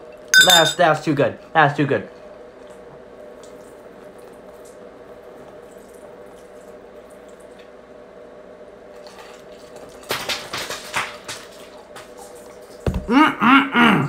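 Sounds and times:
faint steady hum: 0.0 - 10.0.

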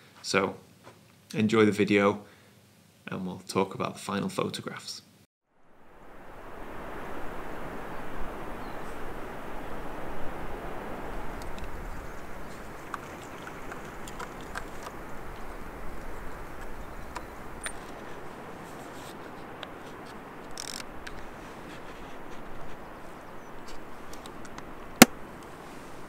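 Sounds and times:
coastal background noise: 5.6 - 26.0.

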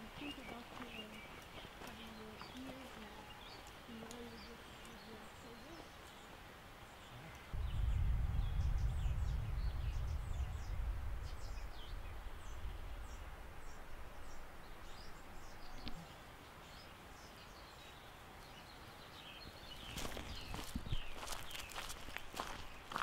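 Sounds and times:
small birds chirping: 0.0 - 23.0
low rumble: 7.5 - 15.7.

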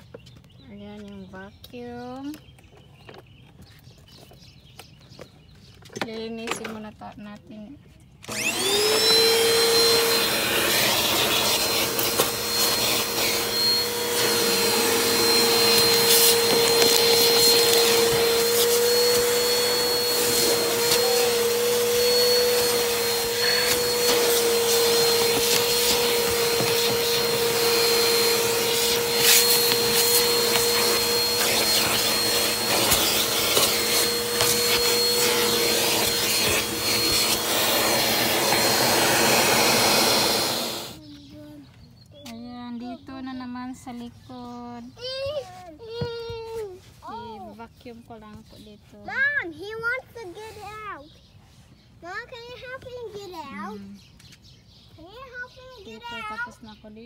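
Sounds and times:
vacuum cleaner whining: 8.2 - 41.0
nozzle knocking against interior: 12.3 - 39.1.

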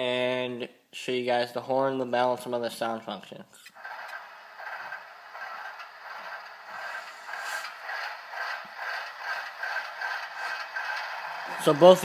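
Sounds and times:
tinny diesel engine clatter: 3.7 - 12.0.

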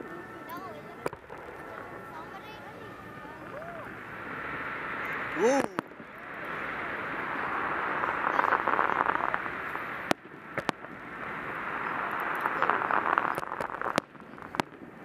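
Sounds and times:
fireworks crackling: 0.0 - 15.0
fireworks shells bursting: 1.0 - 15.0.

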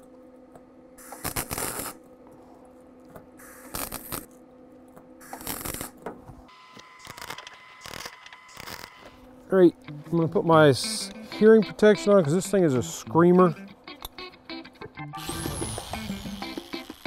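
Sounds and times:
welding arc crackling: 1.0 - 2.0, 3.4 - 4.3, 5.2 - 6.0, 7.0 - 9.0
welder low hum: 15.2 - 17.0.

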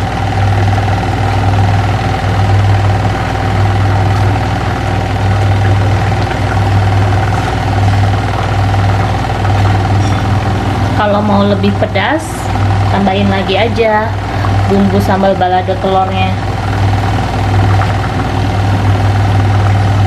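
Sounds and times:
machine hum: 0.0 - 20.0
constant high tone: 4.6 - 16.6.

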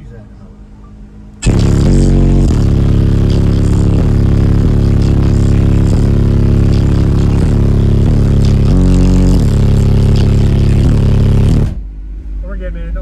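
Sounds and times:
loud rap bassline from subwoofers: 1.4 - 11.8.

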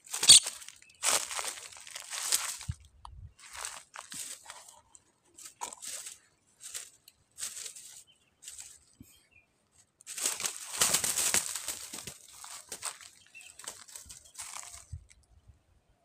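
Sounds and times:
wings flapping on dry litter: 10.1 - 14.8.

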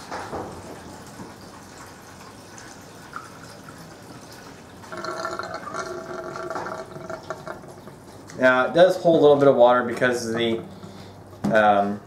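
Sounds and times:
water draining from plastic tub: 0.0 - 8.9
drain gurgling: 0.0 - 11.0.

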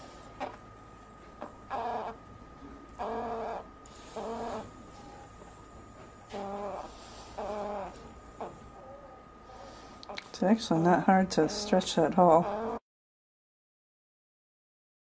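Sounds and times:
faint high-pitched hum: 0.0 - 12.8
animal calling: 1.4 - 2.2, 3.0 - 5.5, 6.3 - 10.2, 11.5 - 12.8.

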